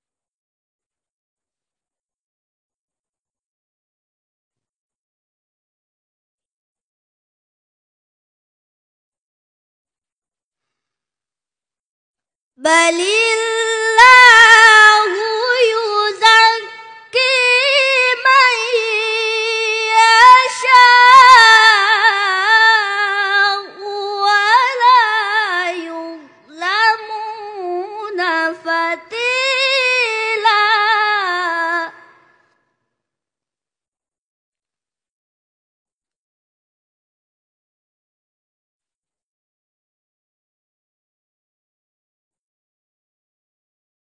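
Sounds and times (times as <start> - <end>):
boy reciting melodically: 12.6 - 31.9.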